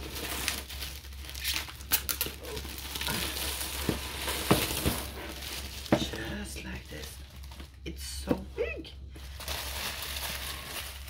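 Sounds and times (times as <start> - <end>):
plastic wrap snapping: 0.0 - 6.2, 9.3 - 11.0
plastic shrink wrap crinkling: 0.0 - 8.1, 9.0 - 11.0.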